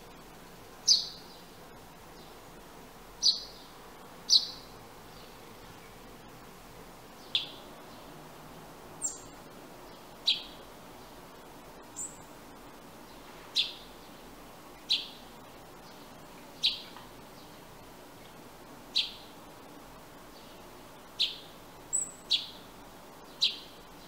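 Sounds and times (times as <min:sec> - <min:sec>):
steady hiss: 0:00.0 - 0:24.0
thin high bird calls: 0:00.8 - 0:01.6, 0:03.2 - 0:06.0, 0:07.2 - 0:08.1, 0:09.0 - 0:11.2, 0:11.8 - 0:12.3, 0:13.1 - 0:14.2, 0:14.8 - 0:17.5, 0:18.9 - 0:19.4, 0:20.4 - 0:22.7, 0:23.3 - 0:24.0
sparrow chirping: 0:00.8 - 0:02.4, 0:03.2 - 0:06.1, 0:07.1 - 0:08.2, 0:09.0 - 0:11.2, 0:11.8 - 0:12.4, 0:13.0 - 0:17.6, 0:18.2 - 0:19.4, 0:20.3 - 0:24.0.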